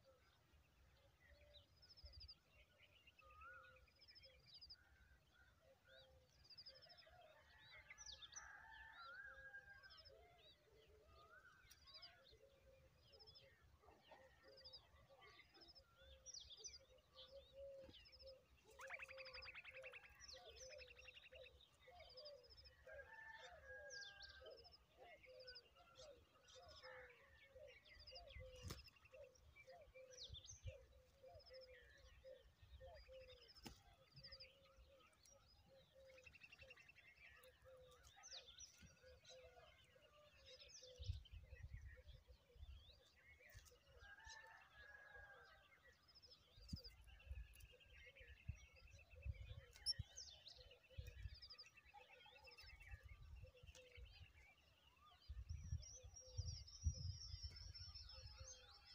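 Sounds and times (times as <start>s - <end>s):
birds chirping: 12.6s - 27.3s, 46.0s - 58.9s.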